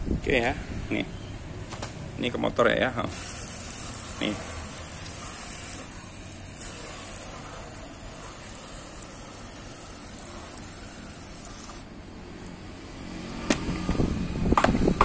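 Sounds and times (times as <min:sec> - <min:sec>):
water spattering on plastic panels: 0:03.1 - 0:11.8
sprayer nozzle hissing: 0:03.1 - 0:11.9.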